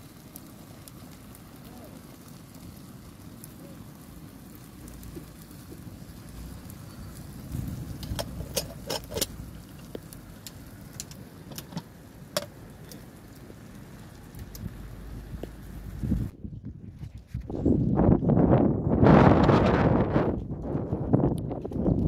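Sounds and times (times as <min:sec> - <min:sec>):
low rumble: 0:06.3 - 0:10.5
metal kettle clinking: 0:08.1 - 0:09.3.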